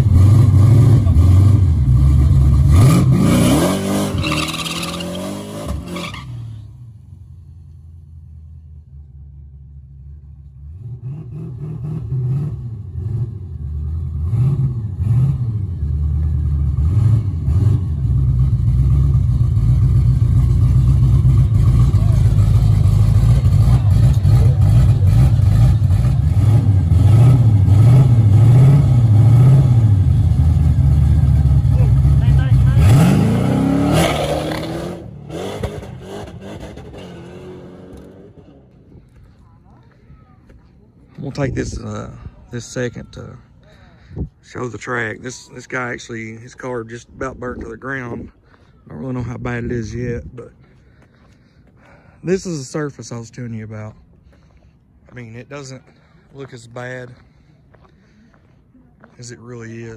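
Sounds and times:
car engine revving: 0.0 - 6.7, 10.5 - 39.2.

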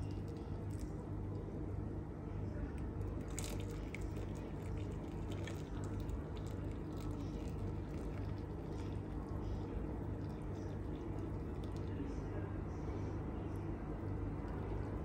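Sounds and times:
steady low hum: 0.0 - 15.0
liquid trickling into a bowl: 2.8 - 12.0.

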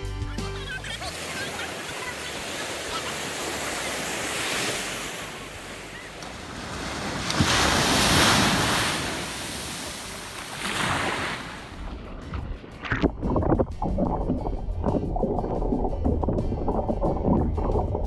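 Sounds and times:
surf washing up a beach: 0.8 - 12.1
wave breaking: 1.0 - 18.0
wind buffeting microphone: 11.8 - 18.0.

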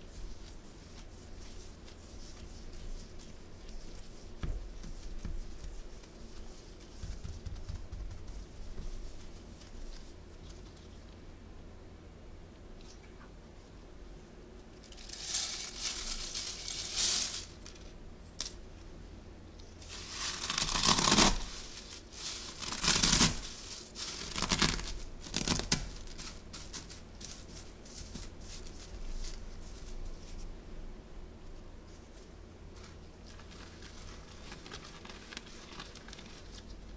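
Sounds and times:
cornflakes crunching: 14.9 - 17.8, 19.8 - 30.0.

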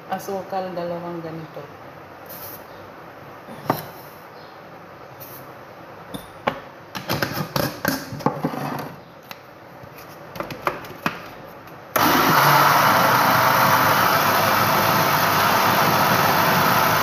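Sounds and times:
blender motor running: 12.0 - 17.0.

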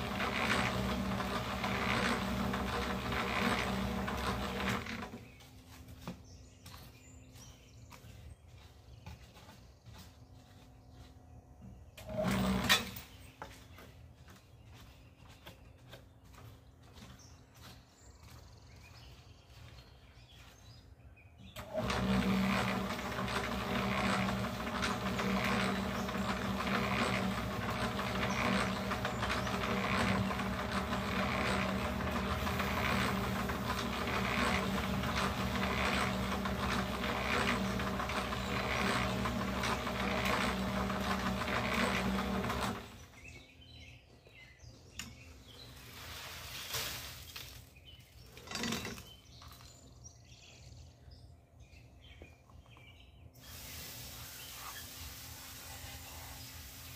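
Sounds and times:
electric cement mixer running: 0.0 - 5.5, 12.0 - 13.1, 21.5 - 43.2.

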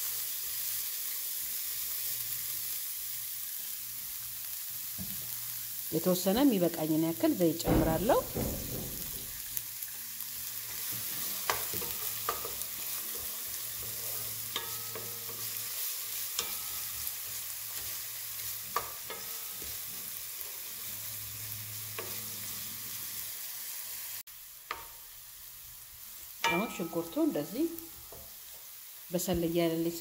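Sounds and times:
onions sizzling in oil: 0.0 - 30.0
spatula scraping and tapping pan: 10.7 - 20.6, 21.9 - 22.4, 24.7 - 25.0.

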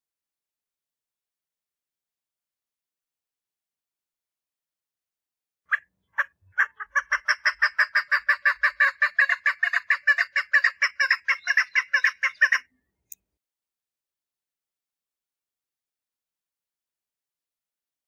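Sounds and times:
partridge clucking call: 5.7 - 12.7.

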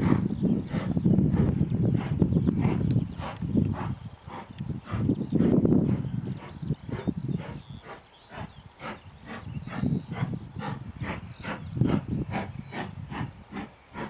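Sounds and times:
wind buffeting microphone: 0.0 - 14.0
steam locomotive chuffing: 8.8 - 14.0.

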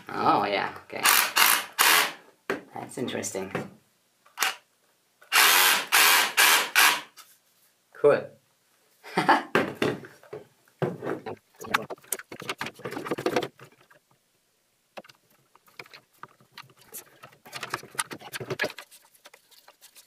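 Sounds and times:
handling rustling and knocks: 9.5 - 14.2, 14.9 - 20.0.

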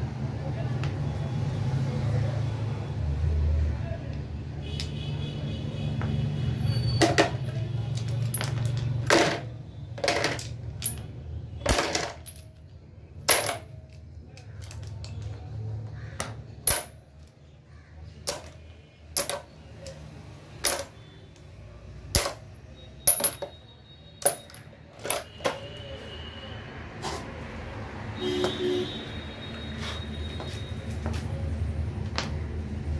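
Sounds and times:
metal sockets clinking on concrete: 4.7 - 5.0, 6.8 - 17.4, 18.2 - 21.4, 22.0 - 25.8.

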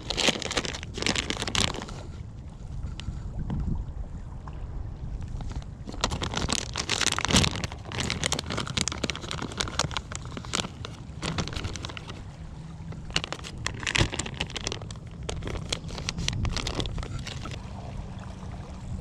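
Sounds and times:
plastic packet crinkling: 0.0 - 2.1, 5.9 - 12.2, 12.9 - 17.6
wind rumble on microphone: 0.0 - 19.0.

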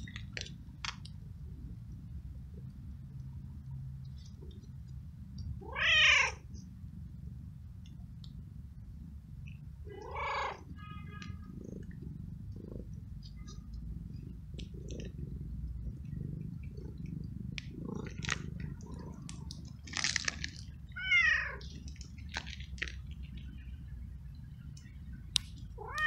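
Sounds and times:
low steady rumble: 0.0 - 26.0
cat meowing: 5.6 - 6.4, 9.9 - 11.4, 20.9 - 21.6, 25.8 - 26.0.

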